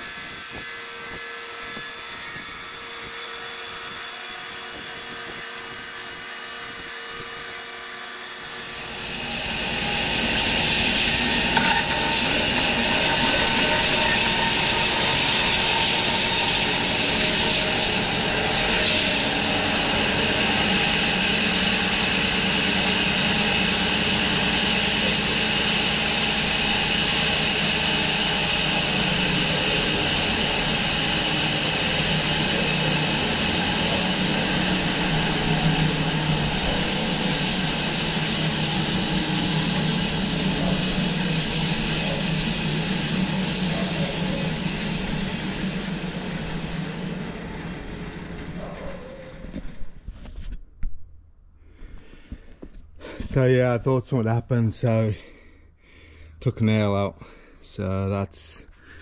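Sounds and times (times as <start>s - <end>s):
saw blade cutting log: 0.0s - 49.5s
bandsaw mill humming: 0.0s - 50.1s.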